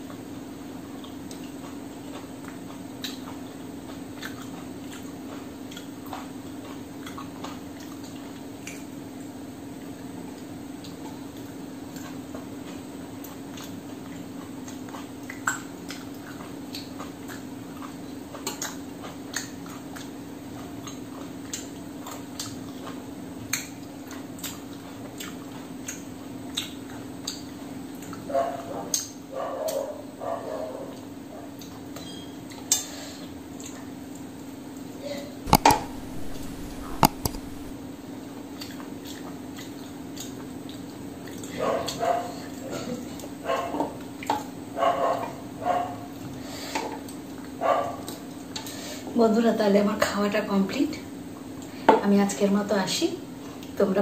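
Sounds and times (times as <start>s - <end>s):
finger-licking clicks: 35.5s - 37.7s
fingers scraping steel plate: 35.5s - 37.7s
lip smacks: 35.5s - 37.7s
wet chewing: 35.5s - 37.7s.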